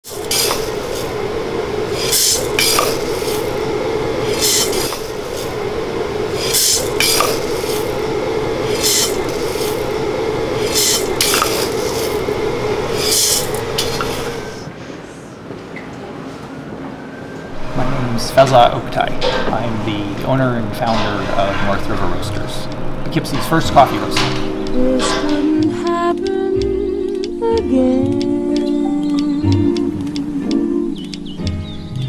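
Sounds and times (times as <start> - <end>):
coffee roaster humming: 0.0 - 14.7, 17.5 - 25.7
hissing air rush: 0.0 - 14.8.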